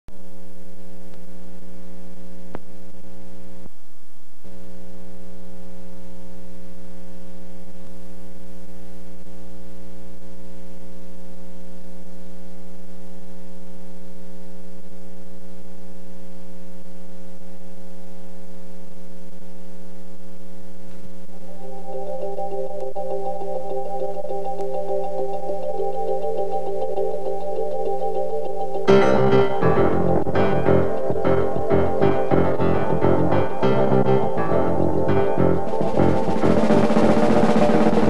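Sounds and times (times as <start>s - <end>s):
steady electrical buzz: 0.1s - 38.0s.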